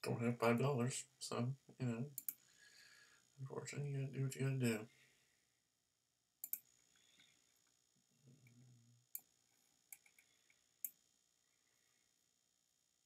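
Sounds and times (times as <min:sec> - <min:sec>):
faint low hum: 0:00.0 - 0:13.0
computer mouse clicks: 0:02.2 - 0:02.4, 0:06.4 - 0:06.7, 0:09.9 - 0:11.0.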